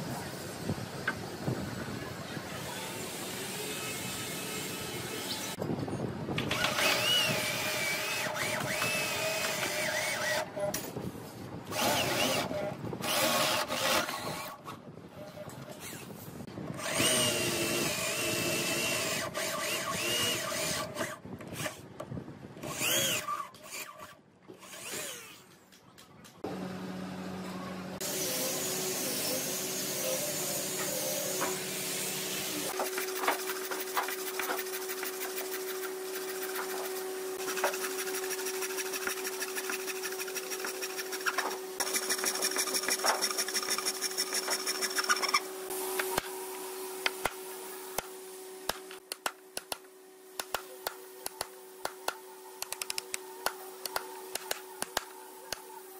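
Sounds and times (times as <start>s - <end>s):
electric drill boring into wood: 6.5s - 10.5s, 11.7s - 14.5s, 16.8s - 21.7s, 22.6s - 23.9s, 24.6s - 25.4s.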